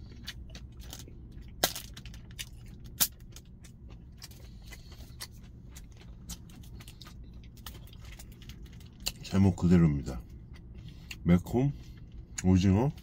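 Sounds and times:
steady low hum: 0.0s - 13.0s
plastic wrapper crinkling: 0.6s - 3.5s.

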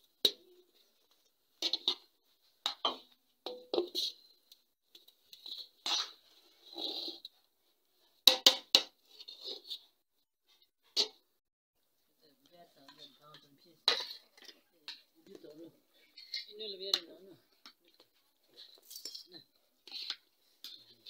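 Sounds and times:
metal spoon scraping a pot: 3.7s - 4.3s, 4.9s - 7.4s, 8.7s - 10.0s, 12.9s - 15.1s, 15.9s - 21.0s.

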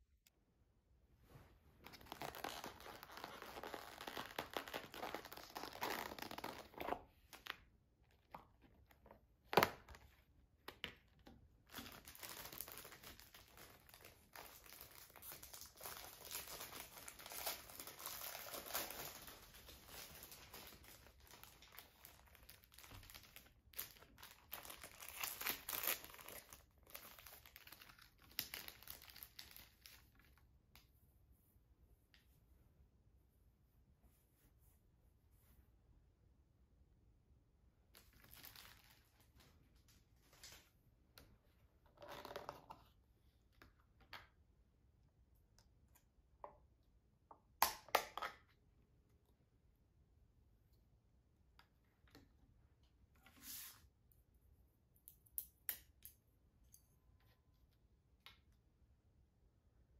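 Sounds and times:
plastic packaging crinkling: 11.7s - 30.0s, 38.0s - 39.3s.

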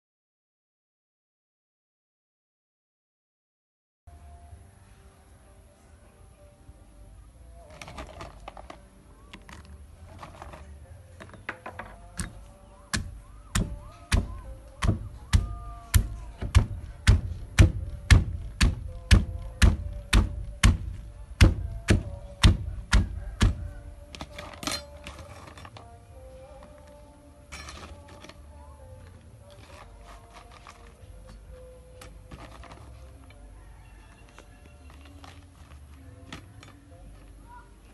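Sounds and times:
pestle pounding in stone mortar: 13.0s - 23.7s.

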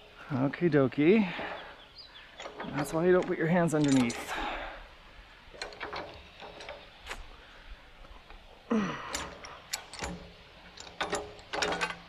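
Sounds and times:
farm jack metal clanking: 2.3s - 4.8s, 5.5s - 7.3s, 8.1s - 12.0s.

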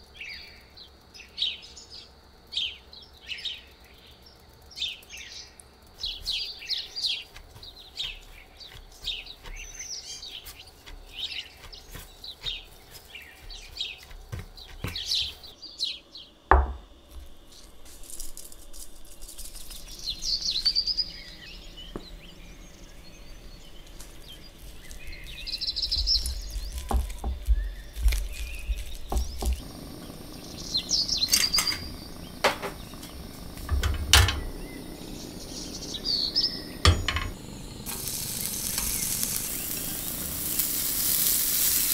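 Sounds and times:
small birds chirping: 0.0s - 41.9s.

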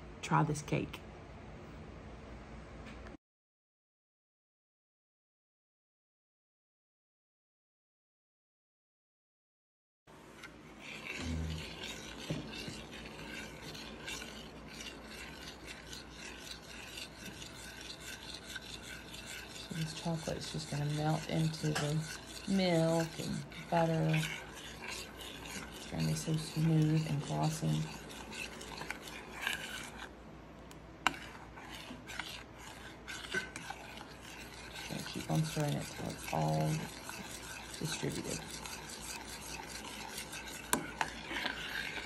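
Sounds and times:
fork scraping a metal saucepan: 10.4s - 30.1s, 31.0s - 42.0s.

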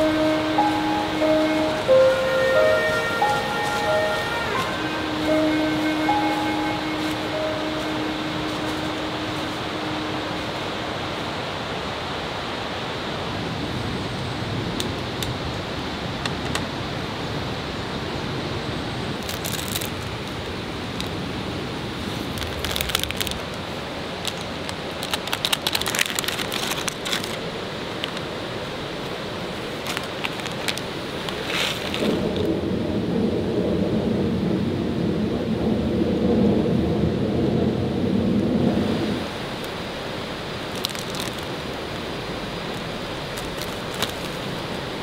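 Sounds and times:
steady hiss: 0.0s - 45.0s
plastic packets crinkling: 19.2s - 20.4s, 22.2s - 28.2s, 29.7s - 32.4s, 40.7s - 42.0s, 42.7s - 44.8s.

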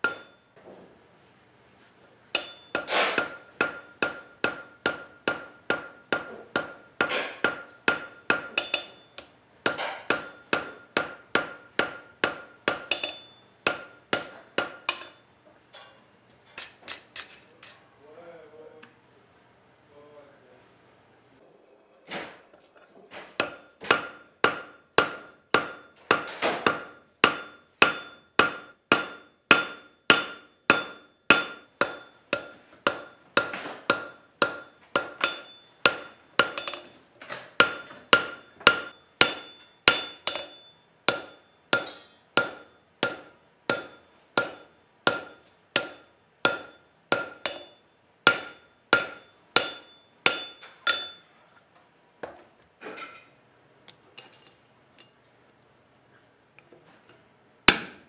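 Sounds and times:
hammer striking steel on anvil: 0.0s - 0.5s, 2.3s - 17.8s, 23.4s - 37.0s, 37.6s - 51.3s, 57.7s - 58.0s.

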